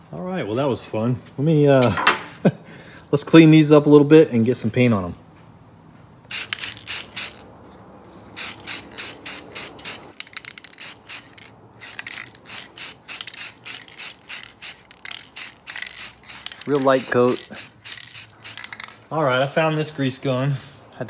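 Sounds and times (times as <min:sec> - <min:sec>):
spray paint can hissing: 0:06.3 - 0:07.4, 0:08.2 - 0:19.0.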